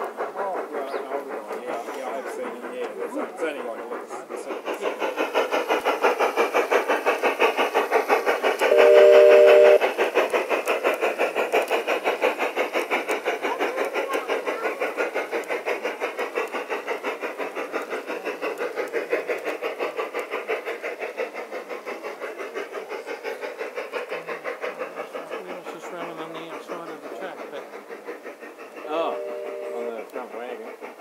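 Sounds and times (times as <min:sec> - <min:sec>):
steam chuffing: 0:00.0 - 0:31.0.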